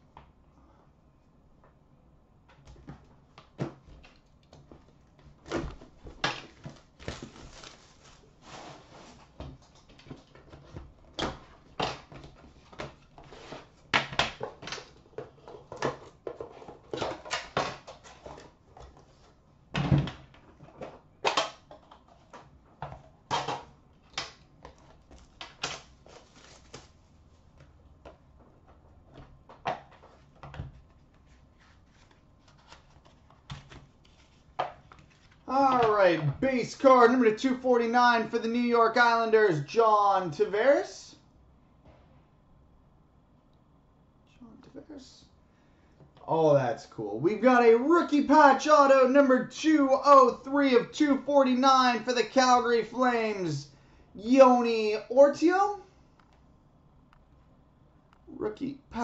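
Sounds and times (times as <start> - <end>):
rustling: 4.7 - 9.9.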